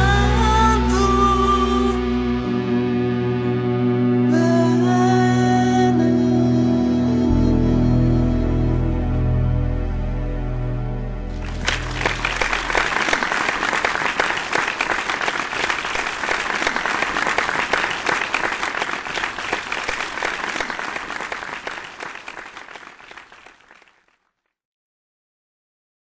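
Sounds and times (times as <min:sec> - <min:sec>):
audience applause: 0:11.3 - 0:24.0.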